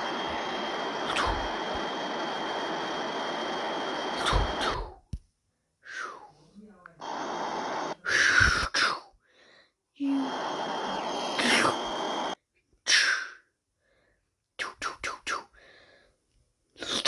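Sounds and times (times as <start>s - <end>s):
mouth hissing and breath bursts: 0.0s - 5.0s, 7.0s - 9.2s, 10.0s - 13.4s.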